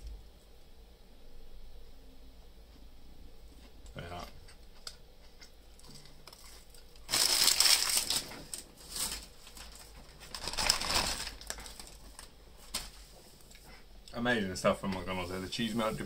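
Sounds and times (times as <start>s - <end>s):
paper bag rustling: 6.0s - 13.5s.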